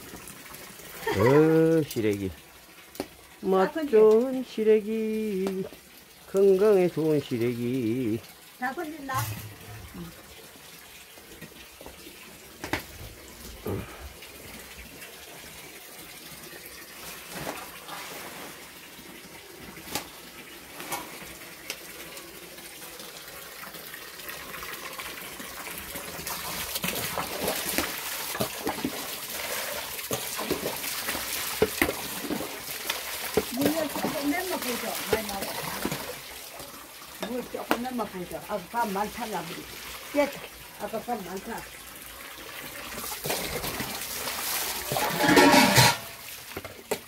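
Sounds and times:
hot water splashing and streaming: 0.0 - 47.0.

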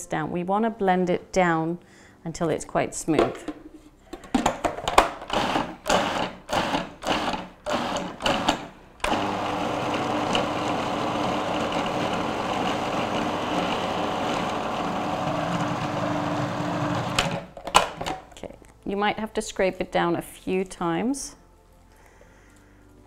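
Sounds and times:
food processor blending beans: 5.3 - 17.4.

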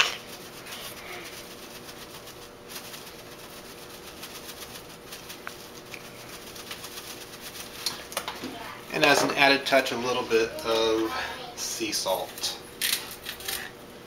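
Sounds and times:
herbs rattling in shaken jar: 0.0 - 8.1.

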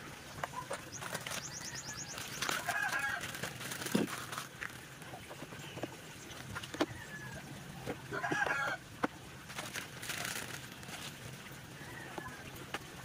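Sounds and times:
chicken calling: 0.5 - 3.4
plastic bag crinkling: 0.9 - 5.2, 9.4 - 11.3.

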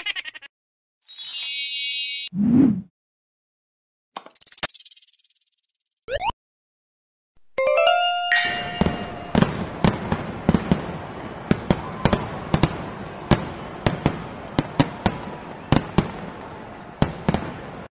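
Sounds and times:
fireworks crackling and banging: 8.8 - 17.9.

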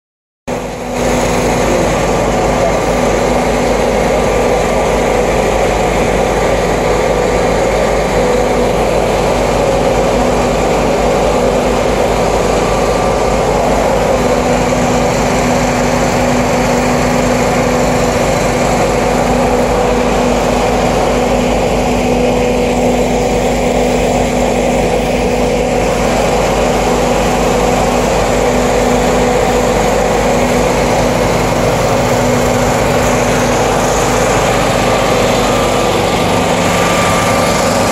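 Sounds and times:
motor running loudly: 0.5 - 37.9.

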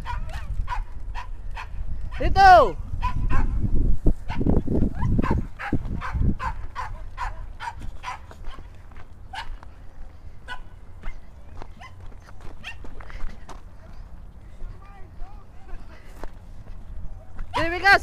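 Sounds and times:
wind rumble on microphone: 0.0 - 13.4.

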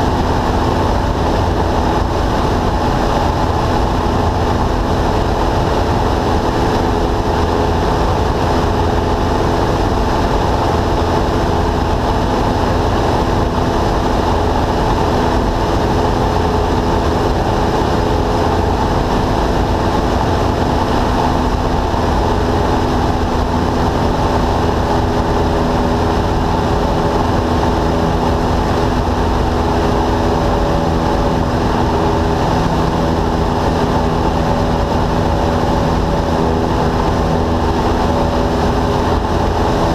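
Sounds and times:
airplane engine drone in cabin: 0.0 - 39.9
rushing air noise: 0.0 - 39.9.

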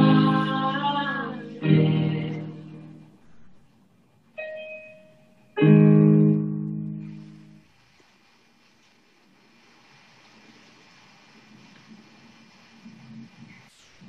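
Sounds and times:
piano chords: 0.0 - 3.5, 4.3 - 7.6.

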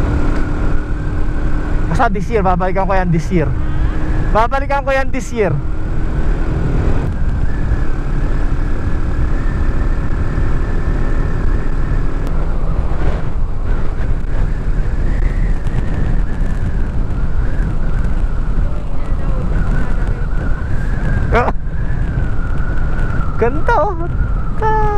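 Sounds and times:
motorcycle engine running: 0.0 - 23.3
wind rushing over microphone: 0.0 - 24.9.

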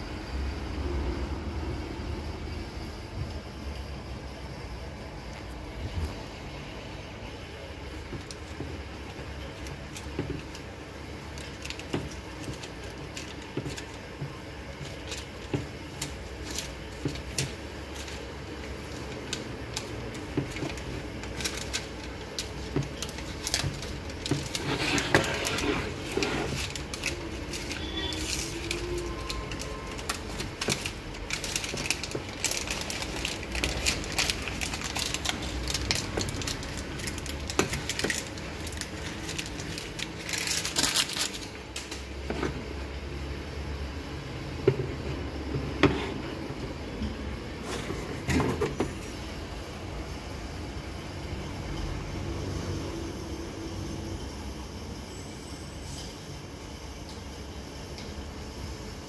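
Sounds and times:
plastic film crackling peeled: 7.5 - 42.3
plastic film tearing: 14.8 - 42.1.

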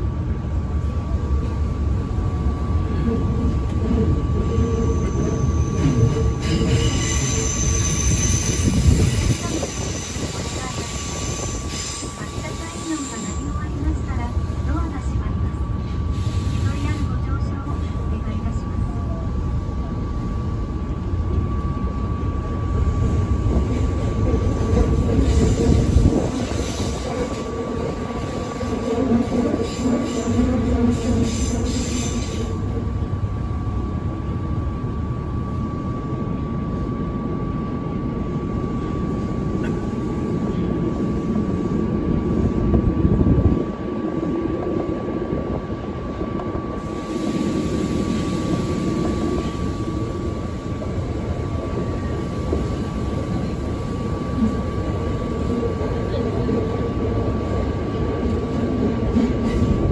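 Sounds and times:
subway wheels rumbling: 0.0 - 59.9
high squeal: 4.8 - 12.1.

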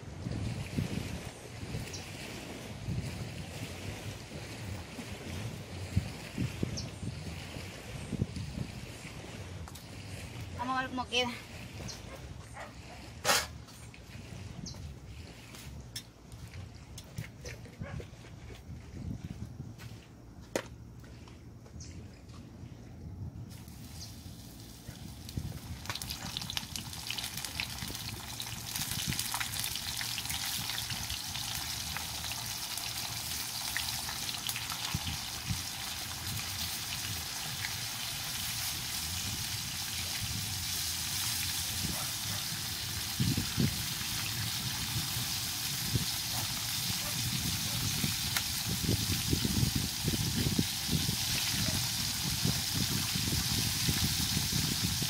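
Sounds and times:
fish frying in hot oil: 23.6 - 55.0.

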